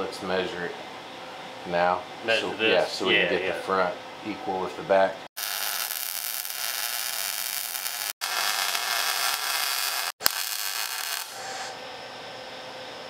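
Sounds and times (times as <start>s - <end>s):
welding arc crackling: 5.4s - 11.7s.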